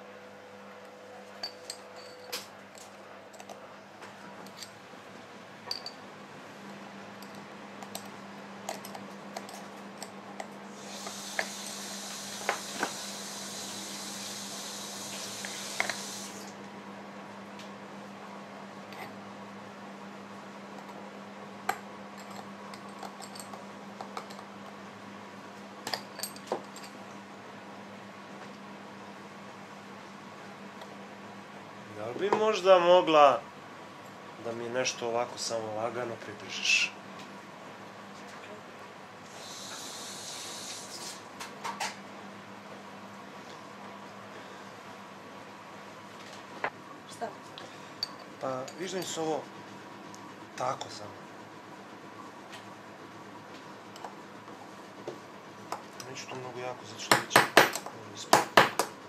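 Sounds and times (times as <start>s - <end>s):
steady hiss: 10.7s - 16.5s, 39.3s - 41.2s.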